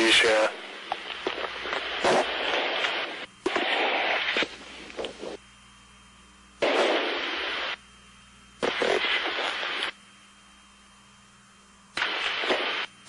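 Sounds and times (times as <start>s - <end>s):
radio static bursts: 0.0s - 5.5s, 6.6s - 7.9s, 8.5s - 10.1s, 11.9s - 13.0s
faint steady hiss and hum: 0.0s - 13.0s.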